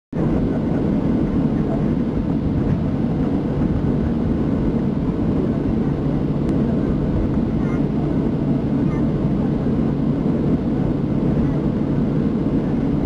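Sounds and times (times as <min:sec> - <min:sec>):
airliner cabin engine hum: 0:00.2 - 0:13.0.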